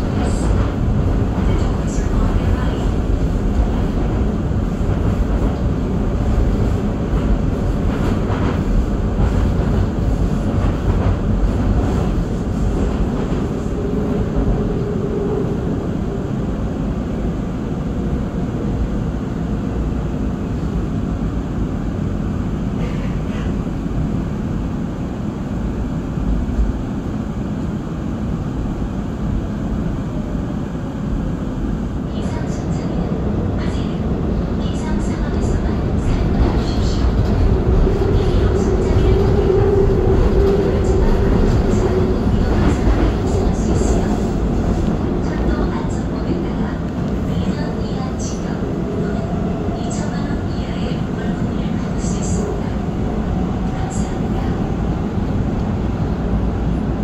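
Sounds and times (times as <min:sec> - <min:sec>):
train wheels rumbling: 0:00.0 - 0:18.9, 0:28.2 - 0:57.0.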